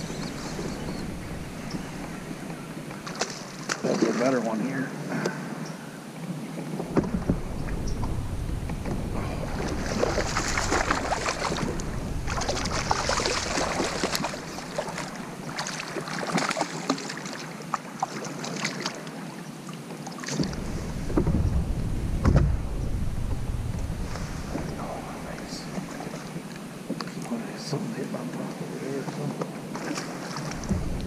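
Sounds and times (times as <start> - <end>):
wind buffeting microphone: 0.0 - 3.8, 5.4 - 16.6, 20.4 - 27.3, 29.5 - 31.0
water splashing from thrashing fish: 9.5 - 19.1.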